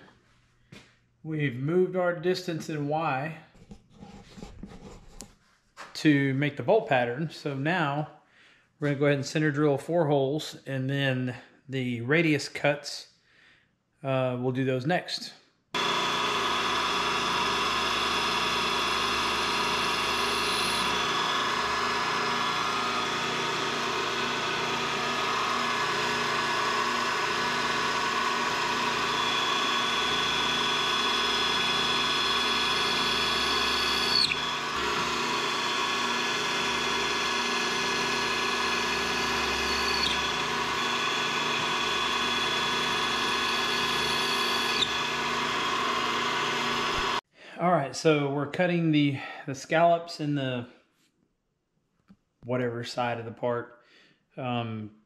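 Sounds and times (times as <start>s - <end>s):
milling machine spindle running: 15.8s - 47.2s.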